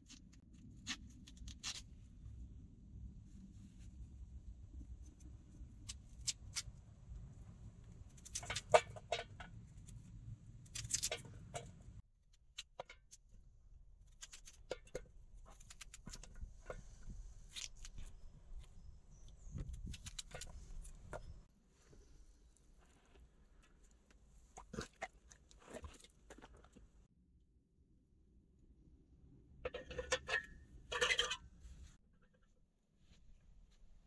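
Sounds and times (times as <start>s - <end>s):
knife peeling potato: 0.0s - 1.9s, 14.0s - 18.2s.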